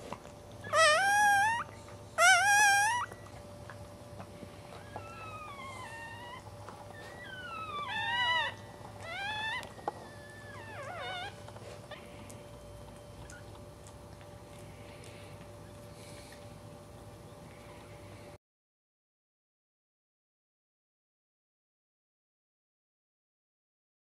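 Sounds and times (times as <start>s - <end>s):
puppy crying: 0.6s - 3.4s, 4.6s - 16.2s.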